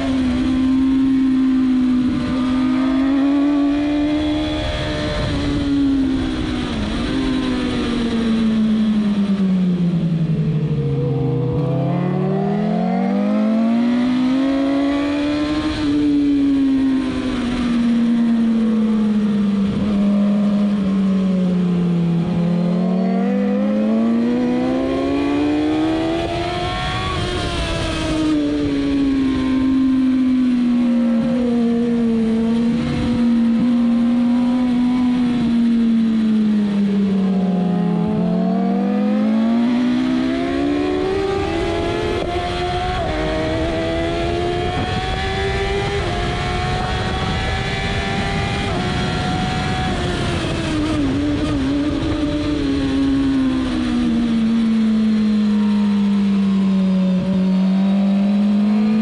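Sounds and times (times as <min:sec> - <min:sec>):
wind rush over microphone: 0:00.0 - 0:10.7, 0:39.6 - 0:55.2
motorcycle engine revving: 0:00.0 - 0:59.0.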